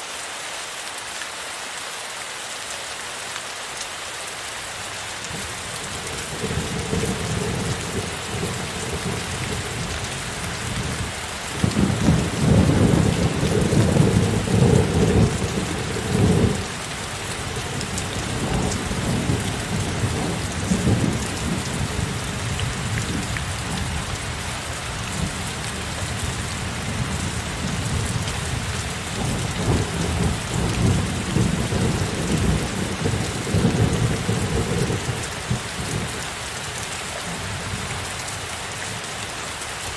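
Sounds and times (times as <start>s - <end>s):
heavy rain: 0.0s - 39.9s
thunder rumbling: 5.3s - 10.0s, 10.6s - 24.2s, 25.2s - 36.2s.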